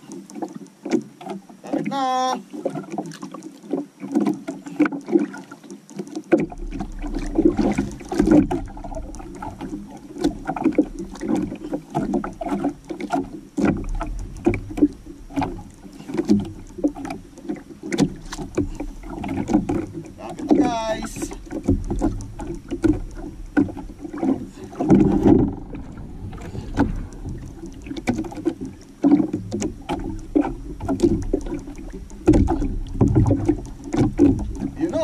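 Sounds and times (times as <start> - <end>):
sharp ticks and knocks: 0.0 - 1.7, 2.6 - 35.0
water lapping against canoe hull: 0.0 - 35.0
low rumble: 24.5 - 28.4.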